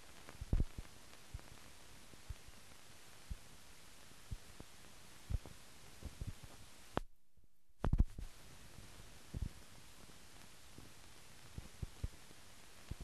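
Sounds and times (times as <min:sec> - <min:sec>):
film soundtrack hiss: 0:00.0 - 0:07.1, 0:07.8 - 0:13.0
low thumps and pops: 0:00.3 - 0:01.5, 0:07.8 - 0:08.3.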